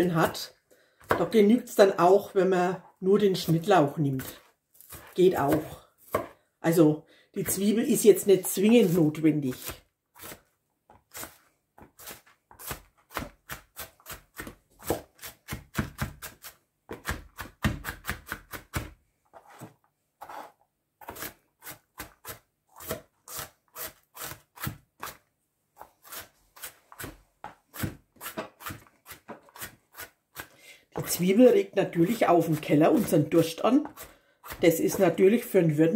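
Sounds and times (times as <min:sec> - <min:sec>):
knife chopping on cutting board: 0:04.2 - 0:06.4, 0:11.1 - 0:19.0, 0:25.8 - 0:31.2.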